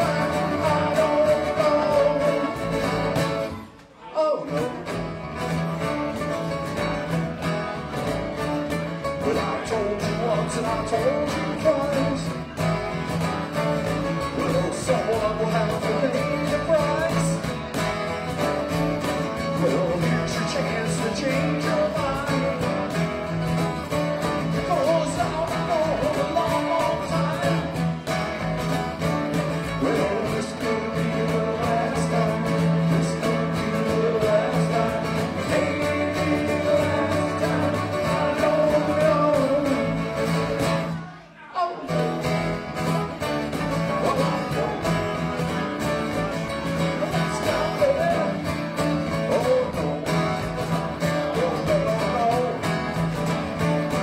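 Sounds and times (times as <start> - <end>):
electric bass: 0.0 - 3.6, 4.8 - 41.0
man singing: 0.0 - 54.0
strummed acoustic guitars: 0.0 - 54.0.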